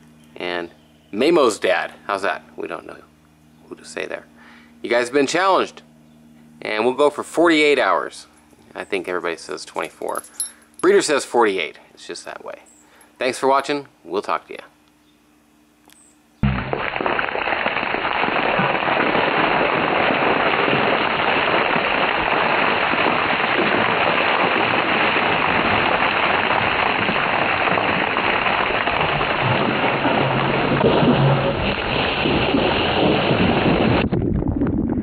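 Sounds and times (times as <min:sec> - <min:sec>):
water pouring and splashing: 0:16.5 - 0:34.1.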